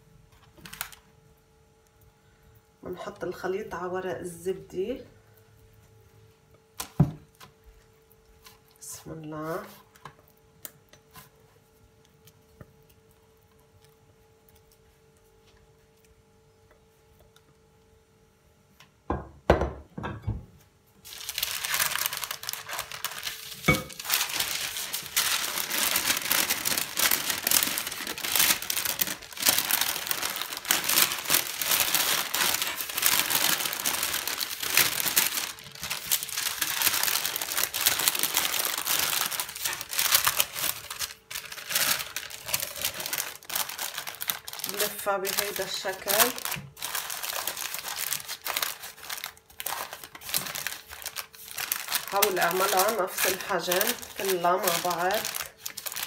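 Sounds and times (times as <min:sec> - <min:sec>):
parchment paper crinkling: 0:00.3 - 0:01.1, 0:21.0 - 0:56.0.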